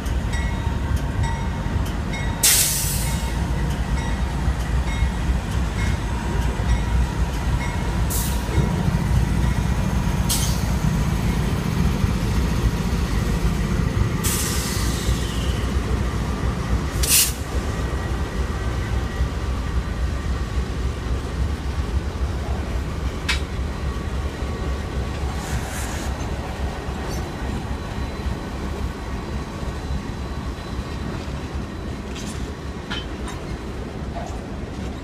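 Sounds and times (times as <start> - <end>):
diesel locomotives rumbling past: 0.0 - 35.0
high-pitched hisses or squeals: 25.3 - 26.3.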